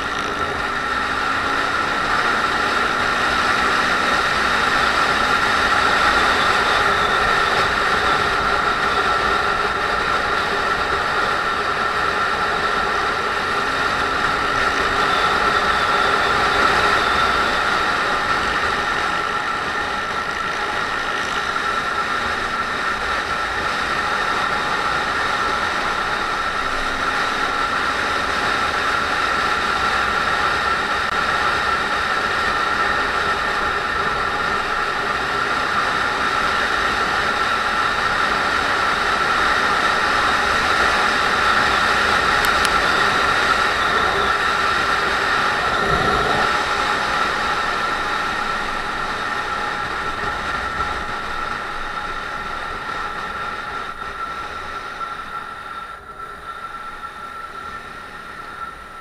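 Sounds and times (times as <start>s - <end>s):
motorcycle engine running: 0.0s - 56.4s
wind rush on microphone: 0.0s - 59.0s.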